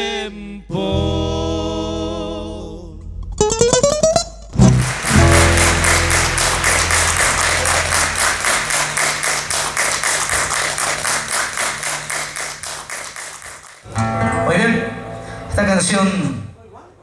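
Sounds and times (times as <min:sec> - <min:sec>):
audience applauding: 0:04.6 - 0:13.9.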